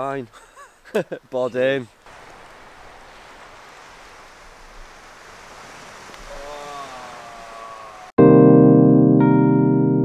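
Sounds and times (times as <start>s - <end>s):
sea surf on a shore: 1.6s - 8.2s.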